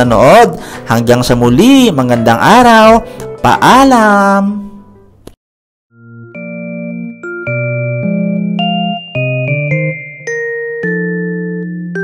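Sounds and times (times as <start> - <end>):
bell-like keyboard melody: 5.9 - 12.0.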